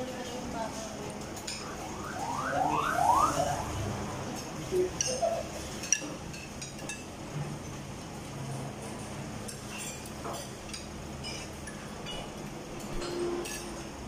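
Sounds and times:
cutlery clinking on plates: 0:04.4 - 0:07.5, 0:08.8 - 0:13.9.

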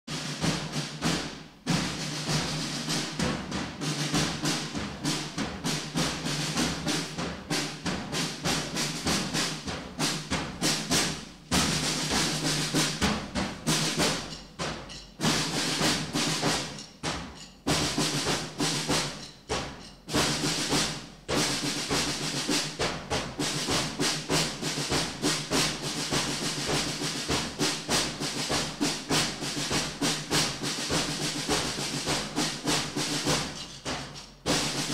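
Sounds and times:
snare drumming: 0:00.1 - 0:34.9.

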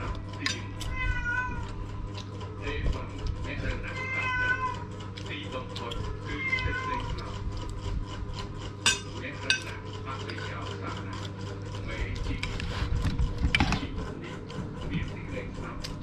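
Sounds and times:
steady hum: 0:00.0 - 0:16.0
spoons clinking on plates: 0:08.8 - 0:09.7.

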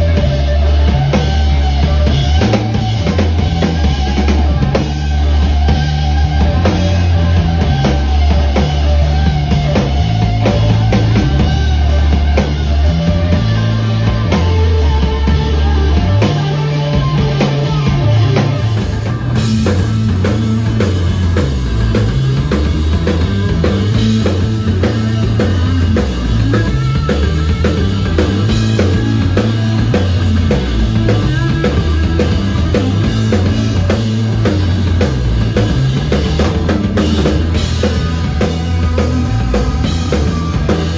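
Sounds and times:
busy drumming: 0:00.0 - 0:40.9
heavy bass line: 0:00.0 - 0:40.9
rock band playing live: 0:00.0 - 0:40.9.

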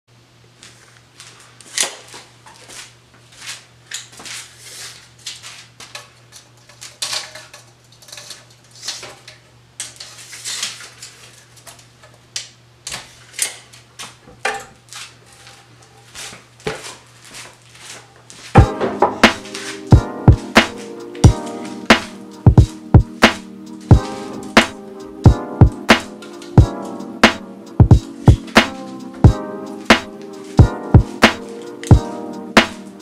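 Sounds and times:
wooden boards knocking and clattering: 0:18.7 - 0:19.4.

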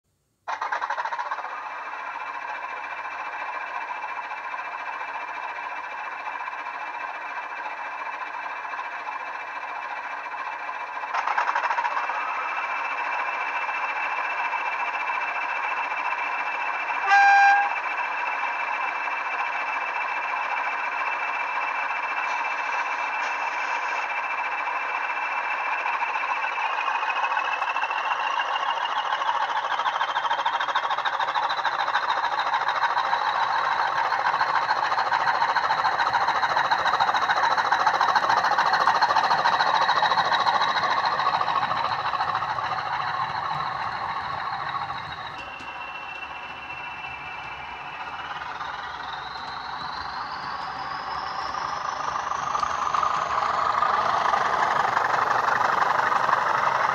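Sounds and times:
diesel locomotive engine whine: 0:00.1 - 0:56.9
locomotive horn blast: 0:17.0 - 0:17.8.

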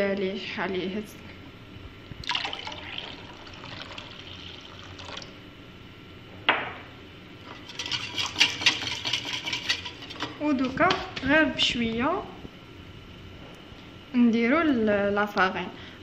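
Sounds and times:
water pouring into a glass bowl: 0:02.2 - 0:05.3.

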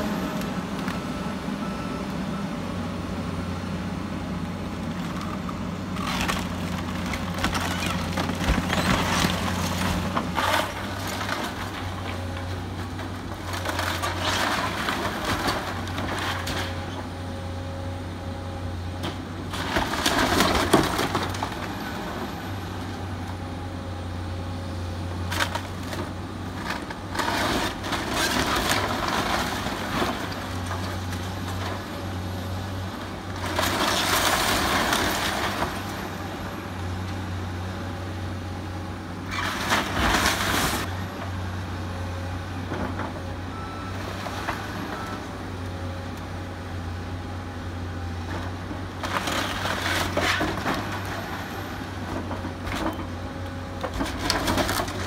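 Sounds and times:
excavator diesel engine running: 0:00.0 - 0:55.0
wood cracking and crushing: 0:05.0 - 0:17.0, 0:19.1 - 0:22.3, 0:25.2 - 0:36.1, 0:48.4 - 0:55.0
debris falling: 0:06.0 - 0:16.8.

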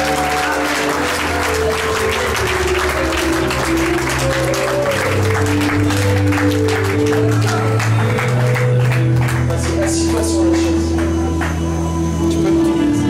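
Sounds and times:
congregation applauding: 0:00.0 - 0:13.0
music with held notes and bass: 0:00.0 - 0:13.0.

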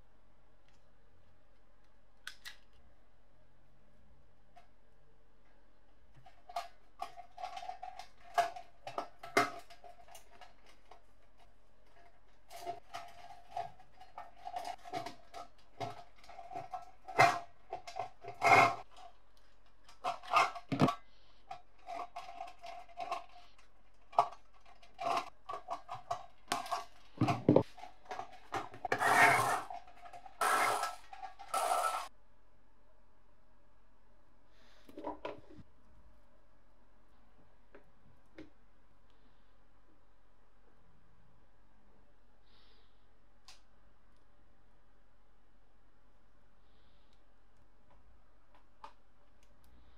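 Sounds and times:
rasping scrapes: 0:16.2 - 0:18.9, 0:27.7 - 0:32.1.

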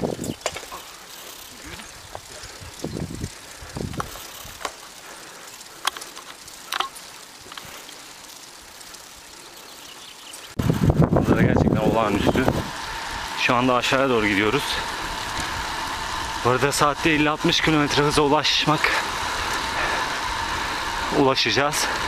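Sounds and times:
low wind buffets: 0:00.0 - 0:09.8, 0:10.4 - 0:22.0
wind on microphone: 0:01.7 - 0:04.6, 0:10.6 - 0:13.3.

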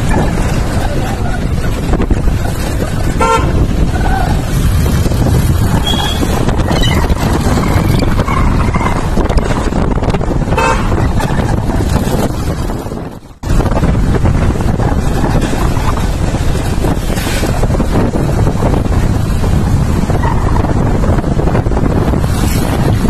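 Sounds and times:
motorcycle engine rumble: 0:00.0 - 0:23.0
wind on microphone: 0:00.0 - 0:23.0
vehicle horn toots: 0:03.2 - 0:03.8, 0:05.8 - 0:06.5, 0:10.5 - 0:11.0.

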